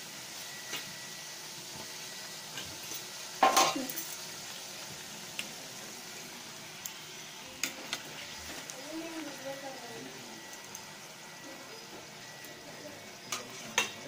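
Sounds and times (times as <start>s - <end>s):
bread sizzling in hot oil: 0.0s - 14.0s
spatula clanging on pan: 3.4s - 4.0s.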